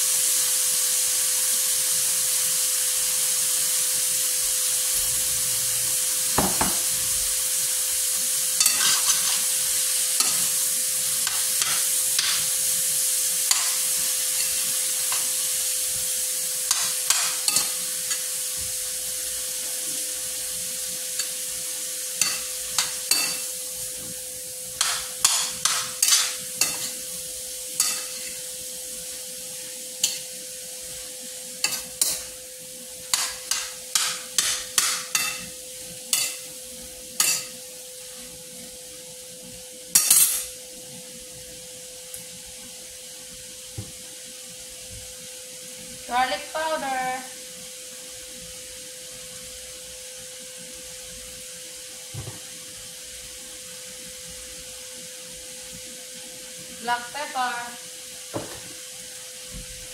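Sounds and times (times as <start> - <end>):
vegetables sizzling in a skillet: 0.0 - 59.9
metal spoon clinking and scraping pan: 8.6 - 12.6, 13.4 - 15.4, 16.7 - 18.4, 21.1 - 21.5, 22.2 - 23.6, 24.8 - 27.1, 27.7 - 28.4, 30.0 - 30.4, 31.6 - 32.4, 33.0 - 35.5, 36.1 - 36.5, 37.2 - 37.6, 39.9 - 40.6.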